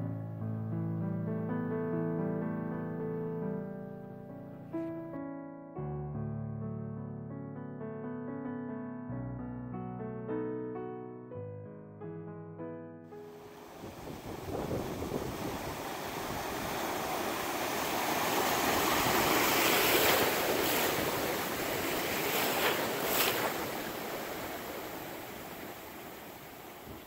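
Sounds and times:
ocean surf waves: 13.2 - 27.0
water splashes: 13.6 - 27.0.

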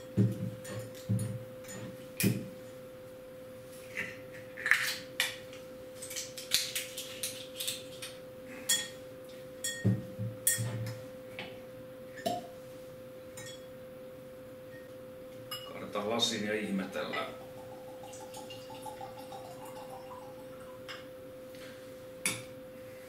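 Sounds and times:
steady low hum: 8.0 - 23.0.

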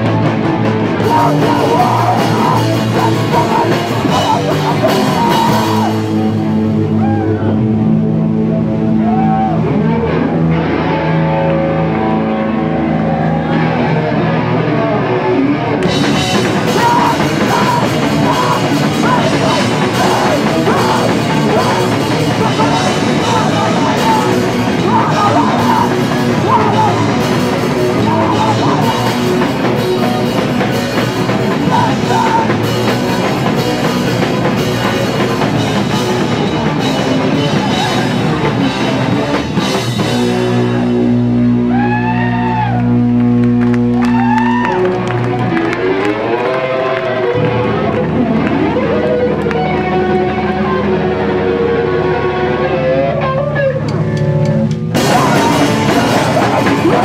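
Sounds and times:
drums and cymbals: 0.0 - 6.5, 15.8 - 41.5, 54.6 - 57.0
electric guitar: 0.0 - 57.0.

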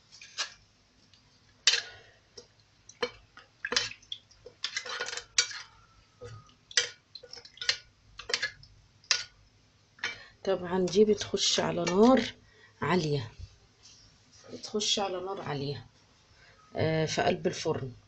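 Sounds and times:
liquid sounds: 1.7 - 9.4.

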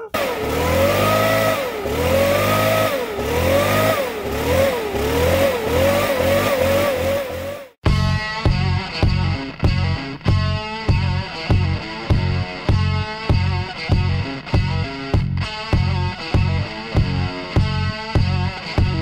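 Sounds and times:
engine revving: 0.0 - 7.8.

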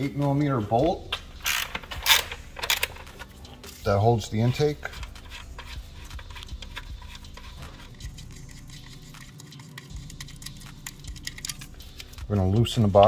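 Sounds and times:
ratchet clicking on bolt: 1.4 - 2.9.

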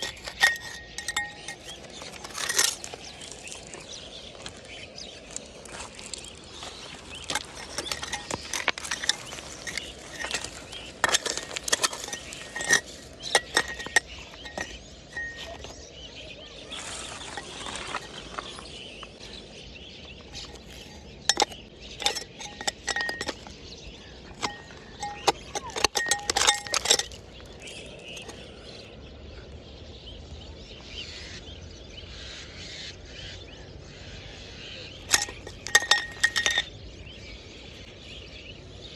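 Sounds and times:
metal blade clinking on stones: 0.0 - 3.9, 6.8 - 15.9, 20.0 - 28.8, 35.0 - 36.7
gritty scraping: 0.0 - 28.8, 34.9 - 36.9.

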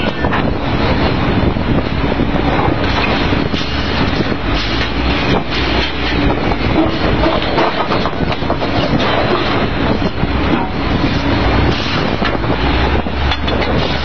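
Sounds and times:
rig machinery rumbling: 0.0 - 14.0
metal clanks of drill pipe: 2.8 - 12.4, 13.0 - 14.0.

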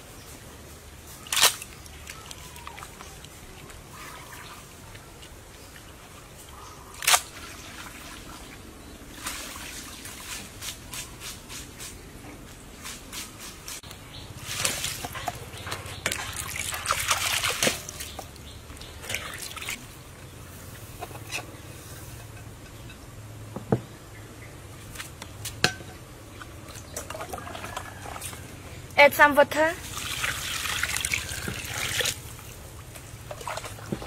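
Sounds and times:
water trickling and dripping: 14.5 - 20.0, 29.8 - 34.0.

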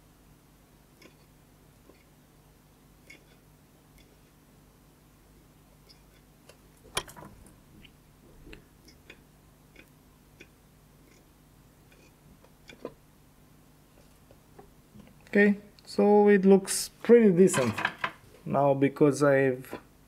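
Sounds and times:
low steady hum: 0.0 - 20.0
soldering iron ticking and scraping: 9.8 - 13.0.

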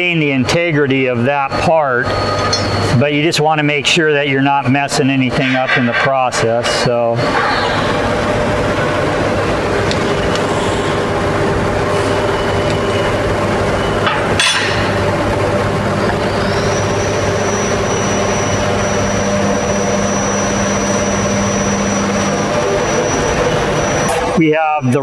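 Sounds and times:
shop machinery hum: 0.0 - 25.0
metal clink: 14.4 - 14.8.

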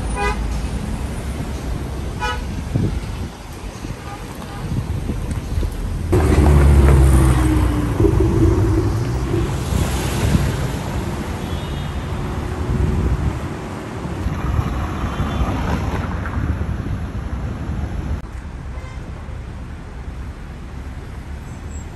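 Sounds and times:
cars driving past: 5.8 - 16.7
loud close car engine: 6.1 - 11.3.

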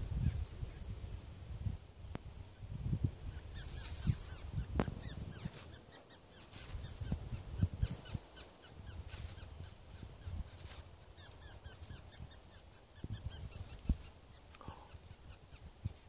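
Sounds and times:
mouse squealing: 3.3 - 15.7.

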